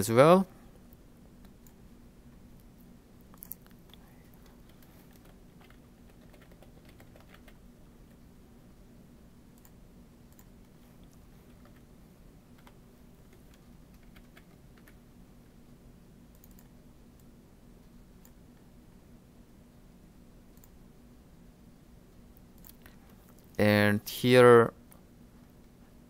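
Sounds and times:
low steady hum: 0.0 - 26.0
computer keyboard typing: 4.4 - 7.6, 11.5 - 11.9, 12.5 - 15.0, 16.4 - 16.7.

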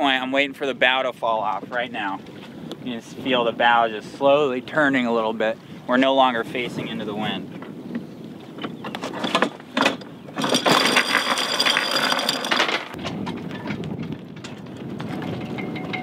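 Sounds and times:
wind: 0.0 - 16.0
anchor chain rattling: 9.0 - 16.0.

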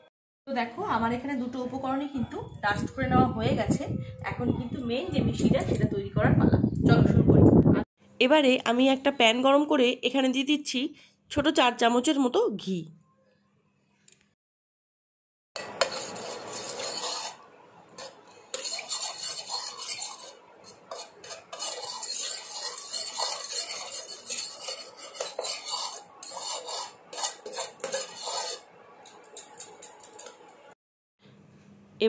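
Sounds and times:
spoon scraping frying pan: 15.6 - 30.5.

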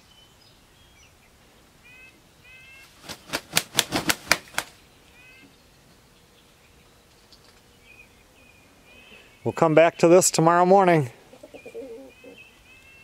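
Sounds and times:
chickens calling: 0.6 - 13.0
chicken wing flaps: 2.8 - 4.8.

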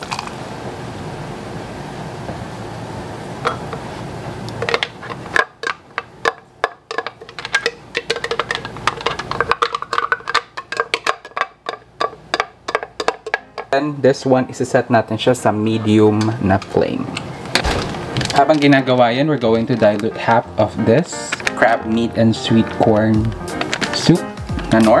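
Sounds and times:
music with knocking percussion: 12.7 - 13.8, 20.2 - 25.0.

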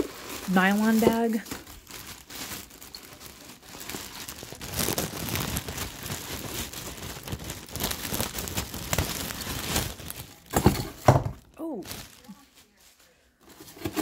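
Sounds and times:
plastic bag crinkling: 0.0 - 14.0.

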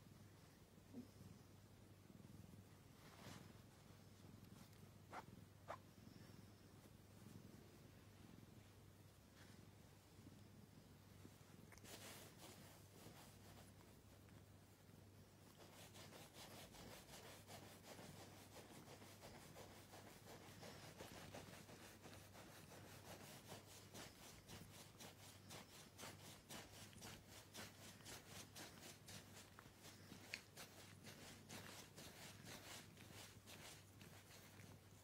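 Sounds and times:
hand stroking fur: 3.0 - 5.8, 11.7 - 14.0, 15.5 - 35.0.

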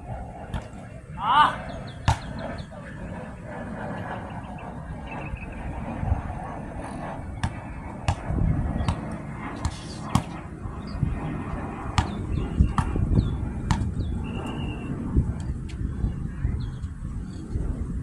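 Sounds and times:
low rumble: 0.0 - 18.0
basketball bouncing on hard court: 2.1 - 2.3, 7.4 - 10.4, 12.0 - 13.0, 13.7 - 13.9.

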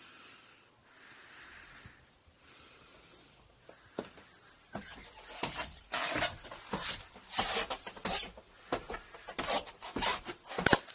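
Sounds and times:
footsteps on stairs: 3.7 - 10.9.

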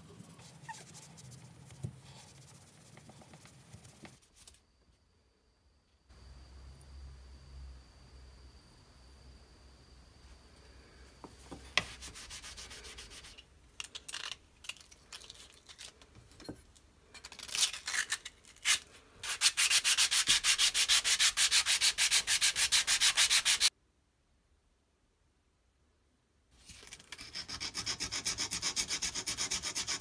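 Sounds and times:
sanding metal strokes: 19.2 - 23.7, 27.1 - 30.0.

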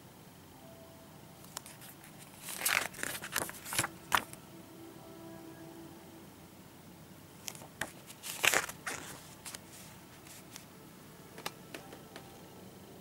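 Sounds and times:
paper and plastic rustling: 1.5 - 4.4, 7.4 - 10.7.

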